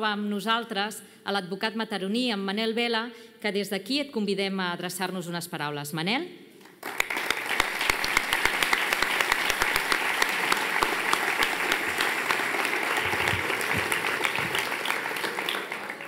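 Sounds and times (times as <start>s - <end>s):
audience applauding: 6.8s - 16.0s.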